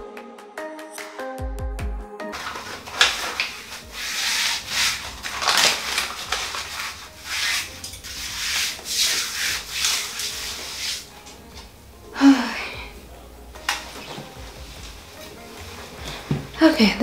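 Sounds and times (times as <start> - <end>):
hands rubbing contact paper: 2.4 - 11.3.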